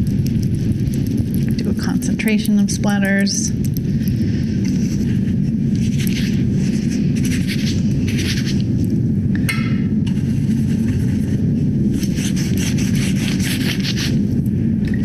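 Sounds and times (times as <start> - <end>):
low hum: 0.0 - 15.0
paintbrush bristles scraping: 4.4 - 8.6, 10.1 - 14.2.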